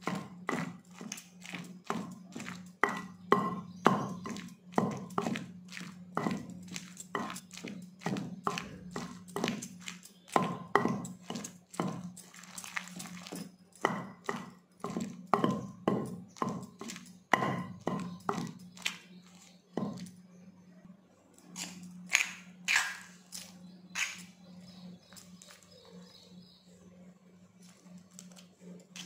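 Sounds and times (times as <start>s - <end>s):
pestle pounding in stone mortar: 0.0s - 20.1s
steady low hum: 0.0s - 29.0s
spoon scraping and clinking on stone: 0.5s - 20.2s.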